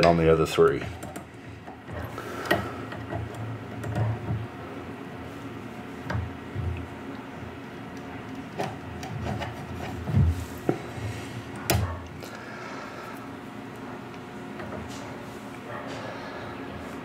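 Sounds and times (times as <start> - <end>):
knocks and handling thumps: 8.4 - 11.1.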